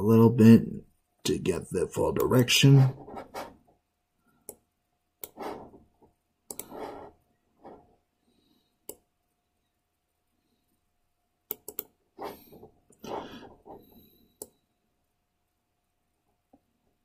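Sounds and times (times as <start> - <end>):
computer mouse clicks: 5.2 - 5.6, 6.5 - 7.0, 8.8 - 9.0, 11.5 - 12.0, 14.4 - 14.6
mouse rubbing: 5.3 - 5.8, 6.6 - 7.8.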